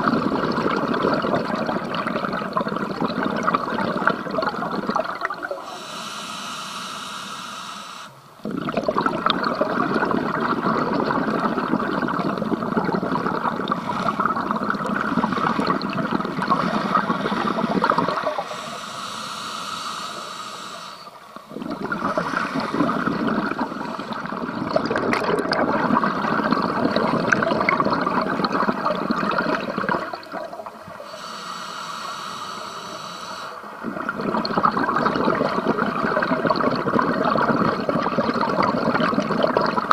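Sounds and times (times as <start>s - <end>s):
exhale bubbles rushing: 0.0s - 6.0s, 8.4s - 19.1s, 20.1s - 31.3s, 32.6s - 39.9s
diver breathing through regulator: 5.6s - 8.2s, 13.6s - 24.6s, 31.0s - 33.8s.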